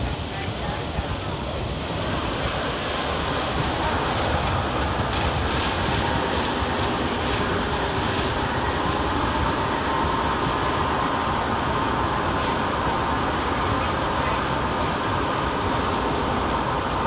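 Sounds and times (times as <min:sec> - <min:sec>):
train wheels clicking: 0:00.0 - 0:11.0
train rumbling on track: 0:00.0 - 0:17.0.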